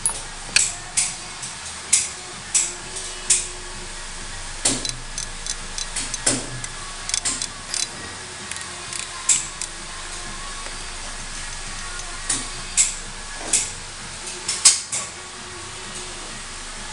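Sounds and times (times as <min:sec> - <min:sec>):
metallic clicks and taps: 0:04.7 - 0:07.9, 0:08.5 - 0:09.8.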